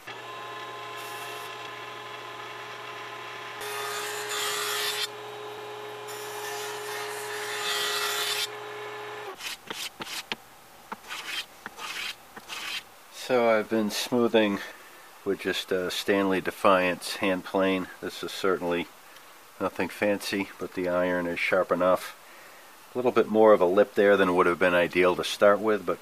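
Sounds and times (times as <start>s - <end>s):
table saw cutting wood: 0.0s - 10.2s, 11.1s - 12.8s
hand plane scraping wood: 9.4s - 12.8s.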